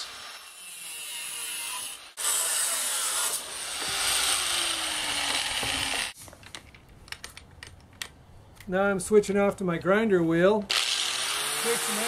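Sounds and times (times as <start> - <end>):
angle grinder cutting steel wire: 0.0 - 6.2, 10.7 - 12.0.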